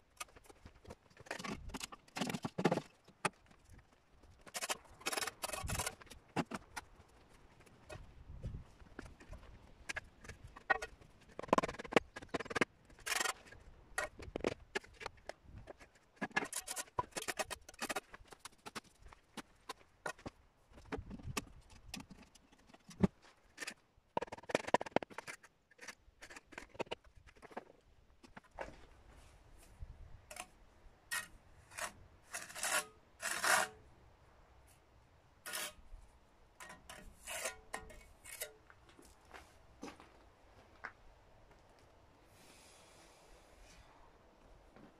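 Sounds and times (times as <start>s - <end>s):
trowel scraping concrete blocks: 4.4s - 6.7s, 31.1s - 33.9s, 35.4s - 35.8s, 36.6s - 38.7s.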